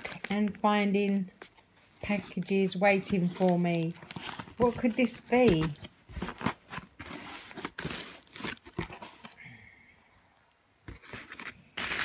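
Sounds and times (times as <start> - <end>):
bubble wrap crinkling: 0.0 - 9.4, 10.9 - 12.0.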